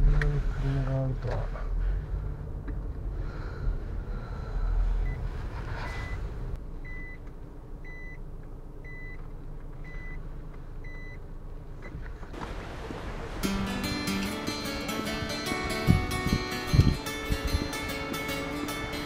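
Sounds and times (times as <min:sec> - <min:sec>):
car engine running: 0:00.0 - 0:19.0
reverse warning beeper: 0:05.9 - 0:06.2, 0:07.8 - 0:08.2.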